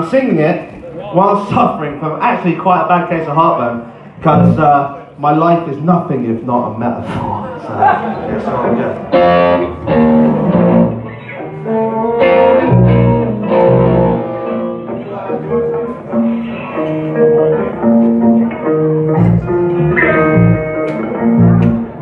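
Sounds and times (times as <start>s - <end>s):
guitar: 0.0s - 5.0s, 6.5s - 22.0s
live band playing: 4.2s - 4.9s, 8.6s - 22.0s.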